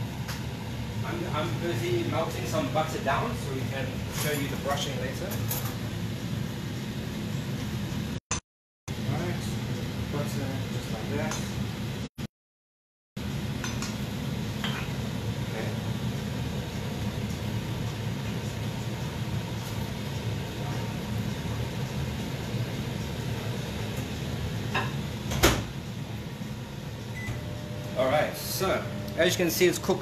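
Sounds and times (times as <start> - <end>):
gas burner flame rumbling: 0.0 - 8.2, 8.9 - 12.1, 13.2 - 30.0.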